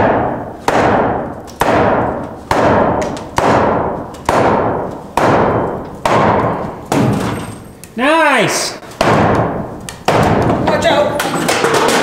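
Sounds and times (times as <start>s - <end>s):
sledgehammer striking wood: 0.0s - 7.6s, 8.9s - 10.8s.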